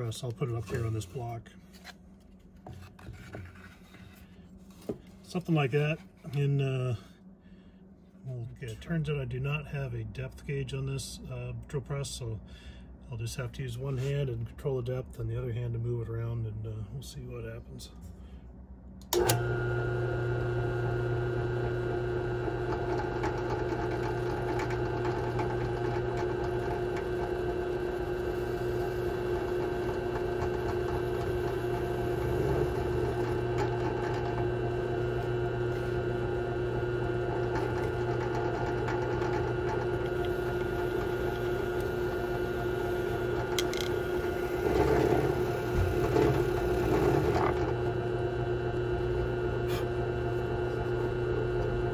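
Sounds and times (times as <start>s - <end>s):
drill press motor whine: 19.0s - 51.9s
end mill cutting plastic: 19.0s - 51.9s.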